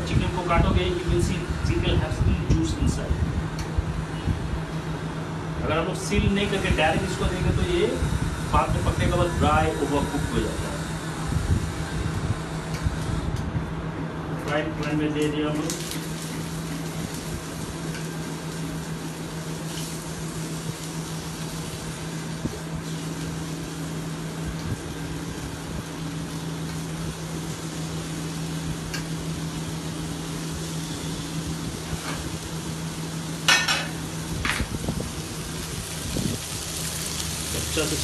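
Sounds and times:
meat sizzling in a frying pan: 15.6 - 38.0.

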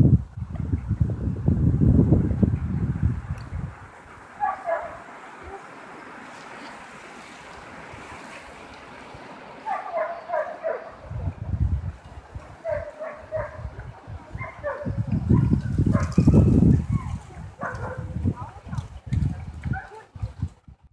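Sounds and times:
wind buffeting microphone: 0.0 - 20.9
huskies whining and yipping: 4.3 - 5.8, 9.6 - 11.1, 12.5 - 18.1.

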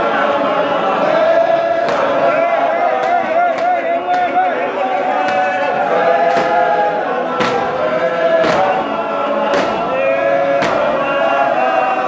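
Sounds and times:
male choir singing in harmony: 0.0 - 12.0
feet stamping: 6.2 - 6.8.

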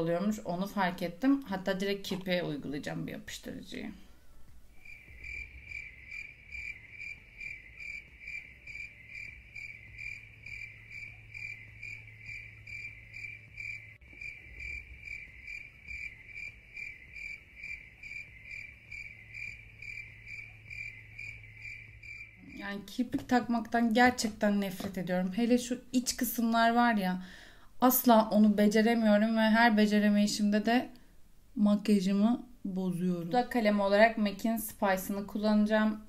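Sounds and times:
faint low hum: 0.0 - 36.0
cricket chirping: 4.8 - 22.9.

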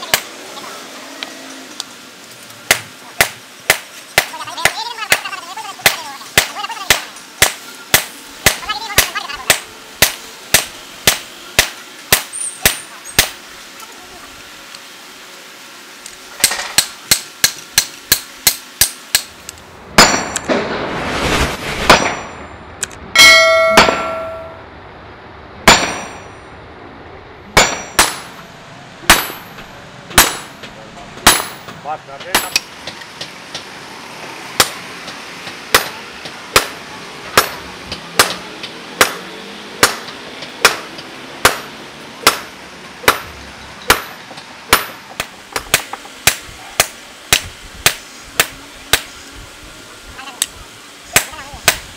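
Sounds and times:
hammer striking steel on anvil: 2.7 - 5.2, 5.8 - 13.4, 16.4 - 19.3, 20.0 - 20.5, 21.9 - 22.4, 23.2 - 24.6, 25.6 - 26.4, 27.6 - 28.4, 29.1 - 33.0, 34.6 - 34.8, 35.7 - 49.1
ringing metallic clang: 23.2 - 24.7, 25.7 - 26.4.

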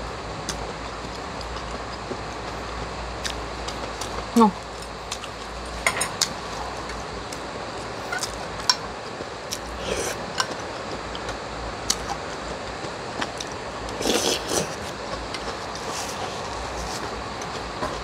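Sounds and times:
heavy rain hiss: 5.6 - 10.8
slurping broth: 13.9 - 14.9.

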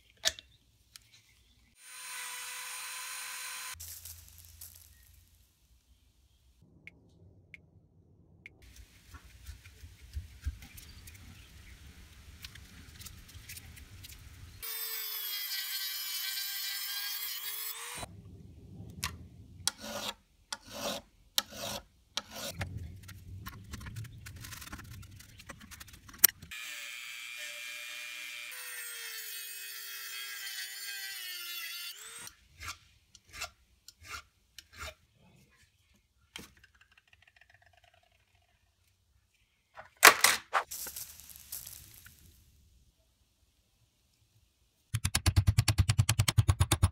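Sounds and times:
small power tool whining: 1.8 - 3.8.

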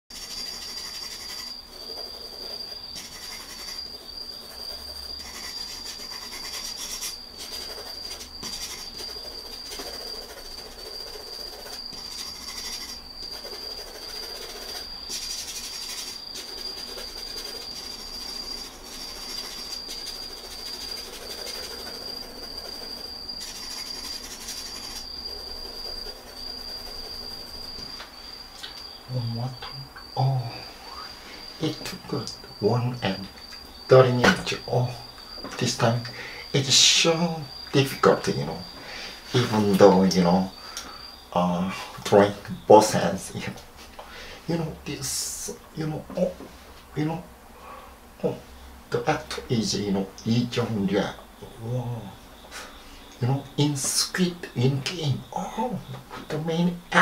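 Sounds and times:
pencil shading on paper: 0.1 - 27.8
steady high-pitched whine: 0.1 - 57.0.

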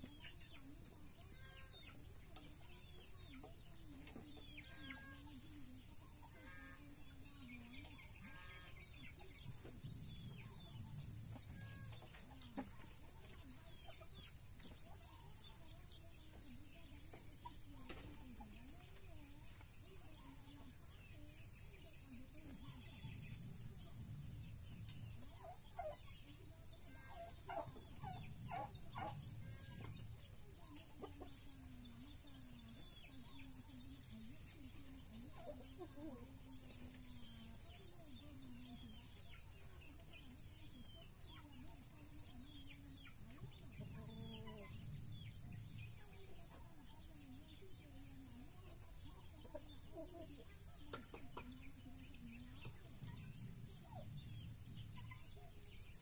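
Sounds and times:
poultry clucking: 6.2 - 20.7, 22.3 - 47.1.

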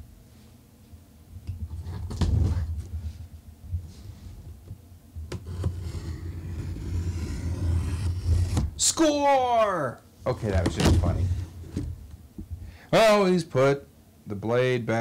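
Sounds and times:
rasping scrape: 5.3 - 8.7.

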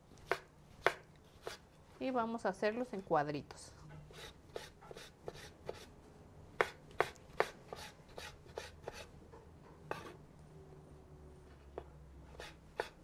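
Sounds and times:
knife chopping on wooden board: 0.2 - 1.6, 4.1 - 5.9, 6.6 - 9.1, 9.9 - 10.2, 12.3 - 13.0.

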